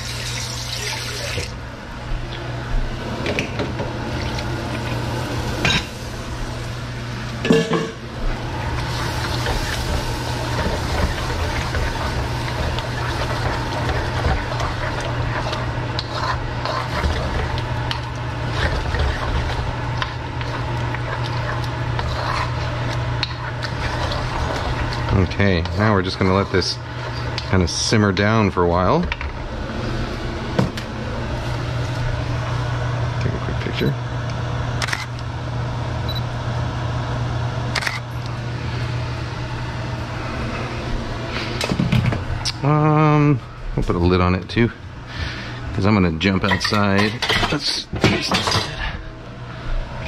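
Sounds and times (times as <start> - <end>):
wooden spoon stirring in a wok: 8.4 - 27.5.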